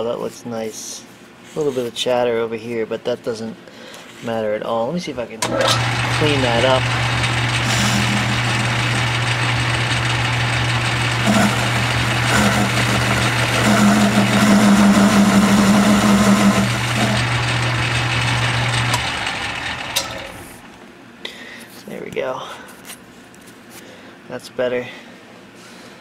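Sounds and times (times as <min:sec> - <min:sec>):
lathe cutting hum: 0:05.4 - 0:20.8
metal lathe motor hum: 0:05.4 - 0:20.8.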